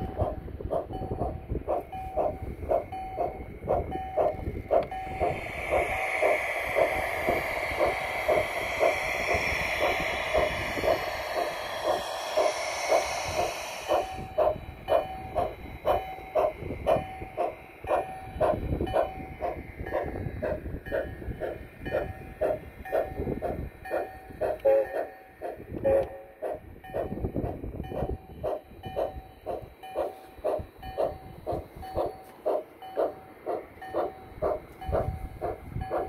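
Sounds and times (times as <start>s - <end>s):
model train rolling on track: 0.0s - 36.0s
steam hiss: 4.2s - 28.2s.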